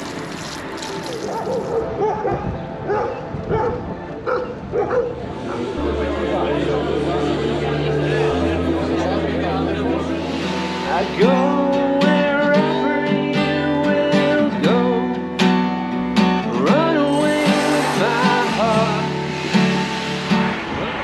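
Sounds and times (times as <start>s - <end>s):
acoustic guitar strumming: 5.7s - 21.0s
man singing: 10.9s - 15.4s, 16.4s - 19.7s.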